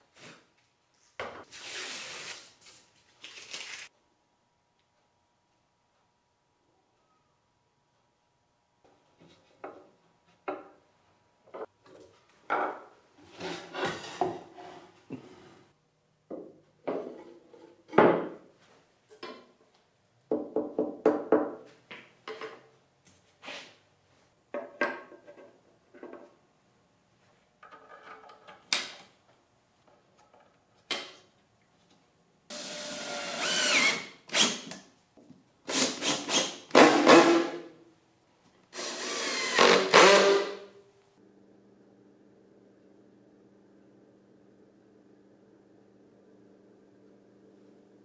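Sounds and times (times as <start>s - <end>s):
drill driving screws into wood: 32.5s - 34.8s, 35.7s - 37.5s, 38.7s - 40.6s.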